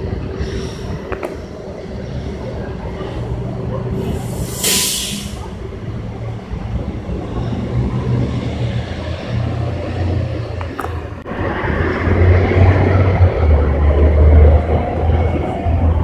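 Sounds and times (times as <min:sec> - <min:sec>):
bus engine droning: 0:00.0 - 0:16.0
street traffic: 0:00.0 - 0:16.0
air hiss: 0:04.0 - 0:05.4.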